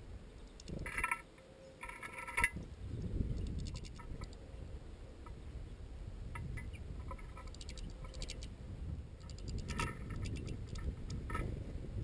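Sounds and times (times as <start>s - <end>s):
wind rumble on microphone: 0.0s - 1.2s, 1.8s - 12.0s
birds clicking at metal feeder: 0.4s - 1.2s, 3.3s - 4.4s, 6.4s - 8.5s, 9.2s - 11.4s.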